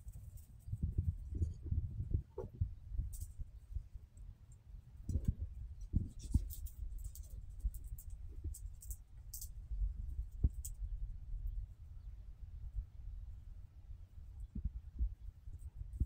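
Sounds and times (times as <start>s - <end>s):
microphone handling rumble: 0.7s - 3.6s, 5.0s - 6.9s.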